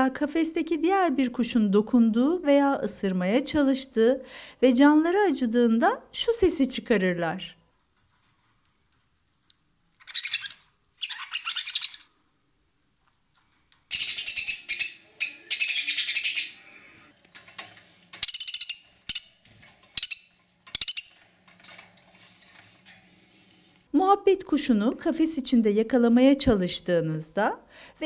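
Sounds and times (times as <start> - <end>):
budgerigar harsh squawks: 13.9 - 16.6.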